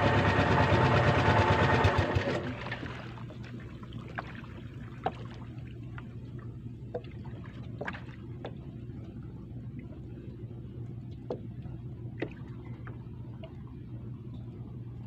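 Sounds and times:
boat engine running: 0.0s - 15.0s
small drips and ticks: 3.3s - 10.1s.

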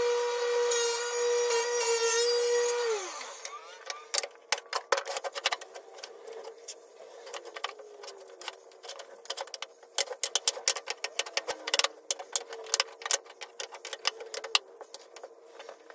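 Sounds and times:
wooden blocks clacking: 7.3s - 15.4s.

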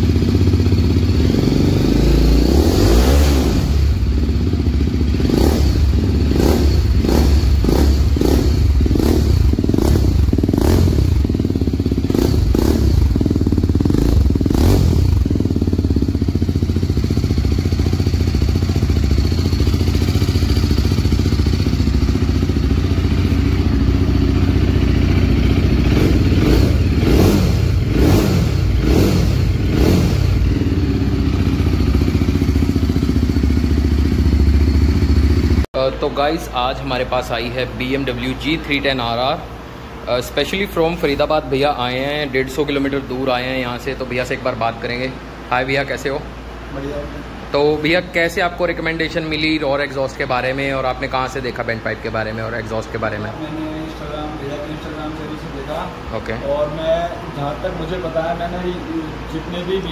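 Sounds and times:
motorcycle engine throttle blips: 0.0s - 36.2s.

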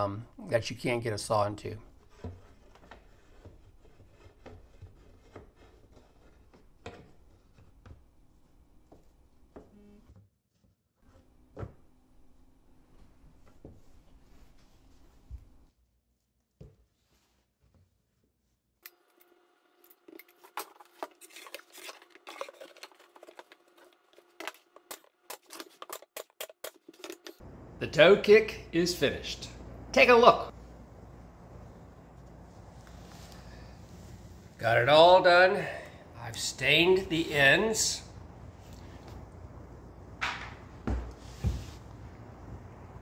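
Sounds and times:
clicks and clatter of hand work: 20.0s - 27.4s
faint steady hum: 27.4s - 43.0s.

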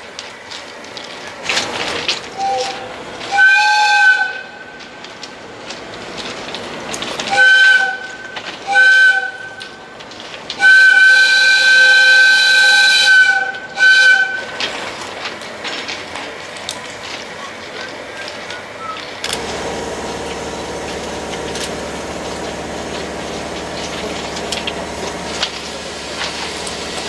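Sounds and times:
locomotive whistle blasts: 2.4s - 4.7s, 7.3s - 9.8s, 10.6s - 14.5s.

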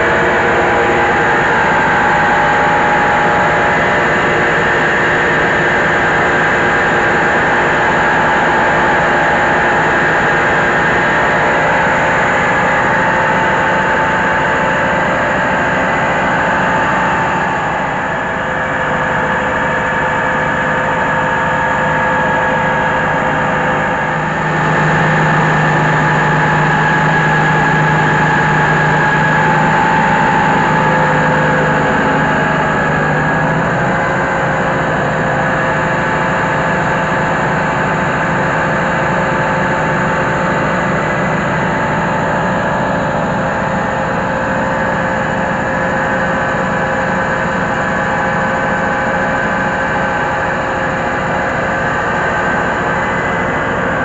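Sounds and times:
rice huller mechanical drone: 0.0s - 54.0s
low hum: 15.4s - 38.5s.

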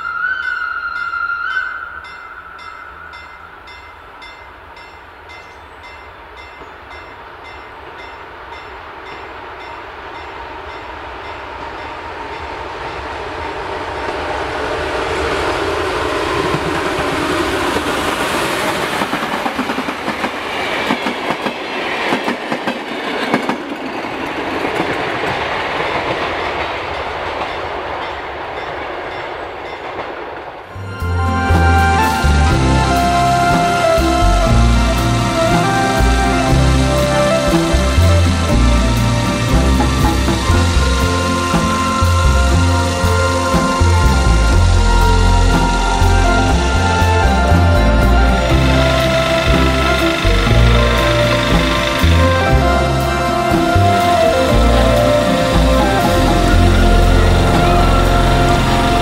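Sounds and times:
steam locomotive passing: 0.0s - 59.0s
wheels clattering over rail joints: 14.0s - 59.0s.

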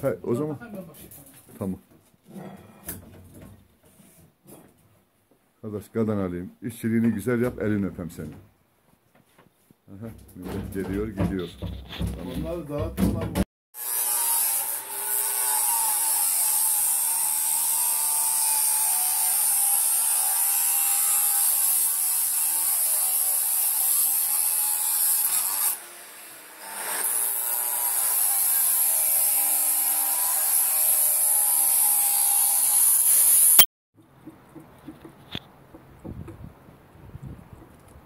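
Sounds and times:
angle grinder cutting steel: 13.8s - 33.7s.

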